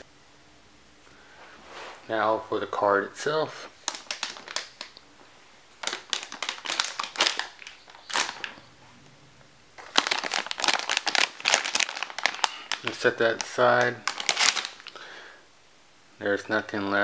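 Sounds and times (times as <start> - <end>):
plastic sleeve crinkling: 3.7 - 8.7, 9.8 - 15.0.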